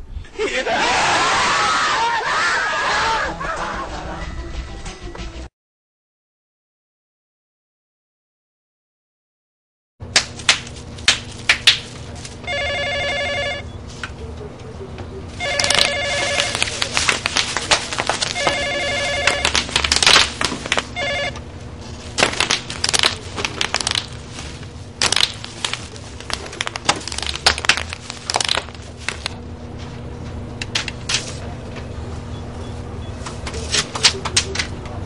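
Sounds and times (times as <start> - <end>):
bubble wrap popping: 10.1 - 12.4, 15.4 - 21.0, 21.8 - 29.4
desk telephone ringing: 12.4 - 13.7, 15.4 - 16.8, 18.2 - 19.7, 20.9 - 21.4.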